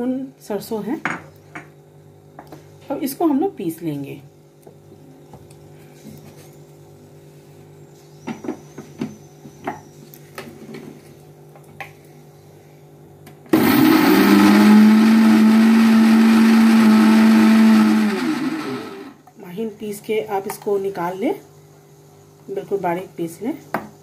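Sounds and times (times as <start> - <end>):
mixer grinder motor running: 13.5 - 19.2.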